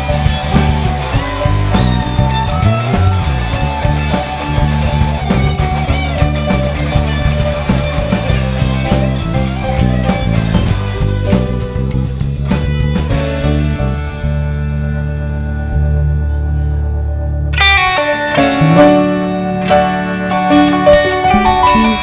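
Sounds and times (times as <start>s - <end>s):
steady drumbeat: 0.0s - 13.9s
bass guitar: 0.0s - 22.0s
electric guitar lead line: 0.0s - 22.0s.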